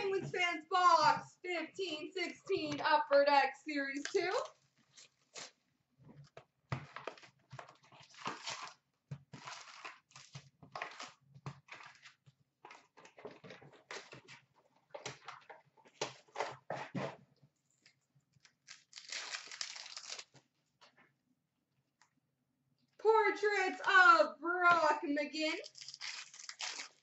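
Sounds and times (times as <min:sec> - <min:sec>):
card packs crinkling and rustling: 0:06.7 - 0:17.0, 0:18.4 - 0:20.5, 0:25.6 - 0:27.0
foil pack tearing: 0:18.6 - 0:20.4, 0:25.6 - 0:27.0.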